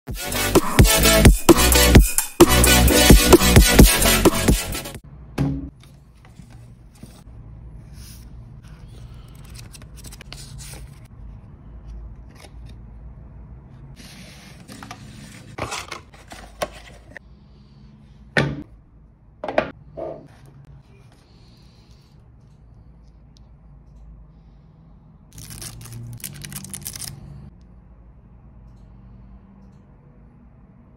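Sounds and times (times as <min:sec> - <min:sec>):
paper and card rustling: 0:05.8 - 0:07.3, 0:07.9 - 0:11.1, 0:14.0 - 0:17.2, 0:25.4 - 0:27.3.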